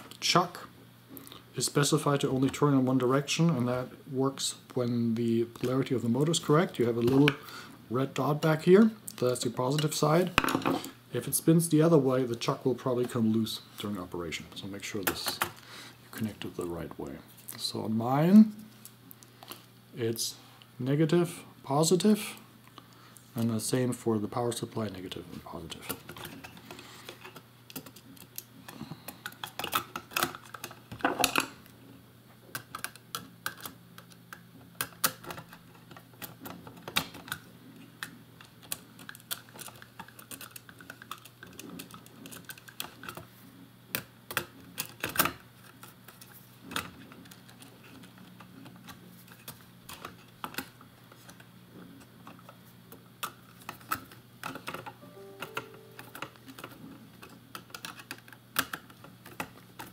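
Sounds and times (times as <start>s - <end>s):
low steady hum: 0.0s - 59.9s.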